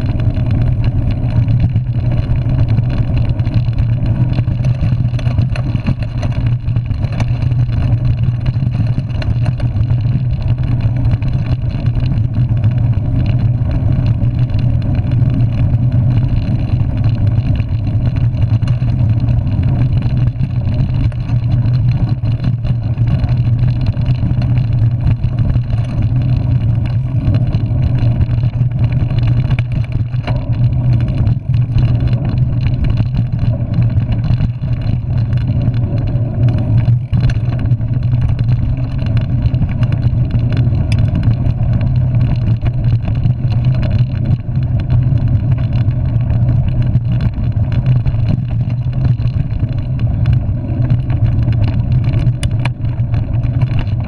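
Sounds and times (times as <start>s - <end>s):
bike tyres rolling on dirt: 0.0s - 54.0s
wind noise on microphone: 0.0s - 54.0s.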